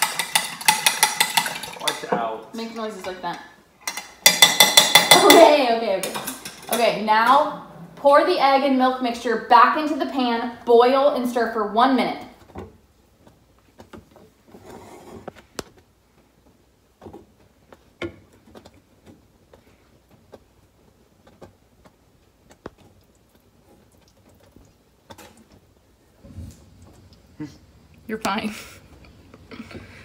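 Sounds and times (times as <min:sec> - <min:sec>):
utensils tapping a saucepan: 0:00.0 - 0:07.5.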